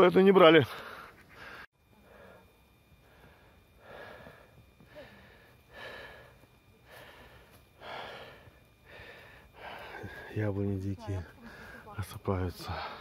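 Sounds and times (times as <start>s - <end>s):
person breathing: 0.7s - 10.4s, 11.3s - 11.9s, 12.6s - 13.0s.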